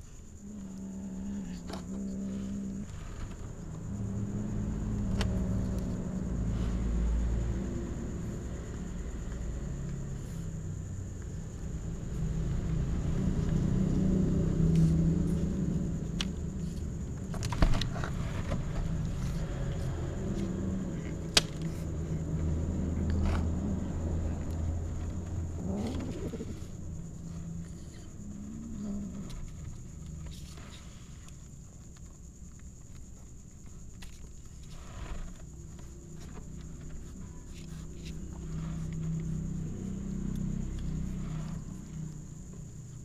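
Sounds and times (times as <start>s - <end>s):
kitten growling: 25.2s - 29.5s.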